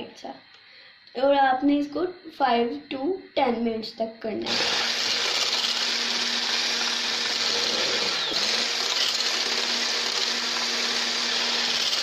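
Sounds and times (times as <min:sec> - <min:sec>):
electric frother whirring: 0:04.4 - 0:12.0.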